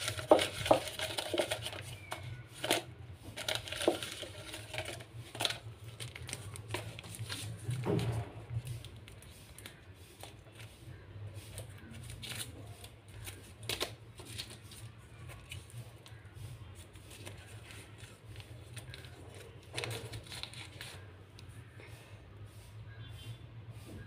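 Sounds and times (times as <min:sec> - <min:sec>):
paper crinkling and rustling: 0:00.0 - 0:21.8
scissors snipping paper: 0:17.0 - 0:21.0.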